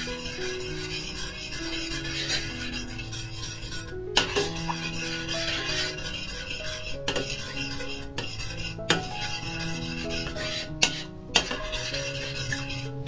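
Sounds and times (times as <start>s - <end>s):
metal spoon scraping a pot: 0.0s - 13.0s
slow instrumental melody: 0.0s - 13.0s
spoon clinking against pot: 4.2s - 9.3s, 9.9s - 12.8s.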